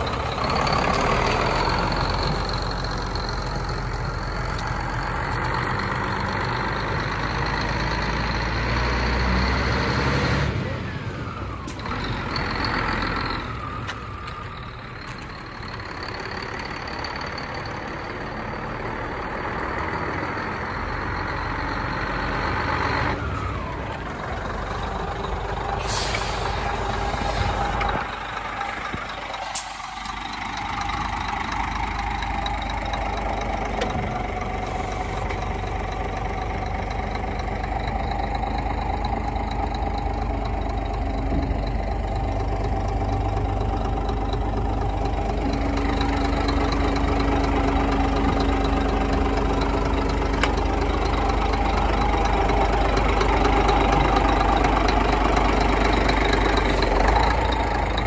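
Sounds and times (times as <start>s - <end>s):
truck diesel engine running: 0.0s - 58.0s
air brake hisses: 25.8s - 27.6s.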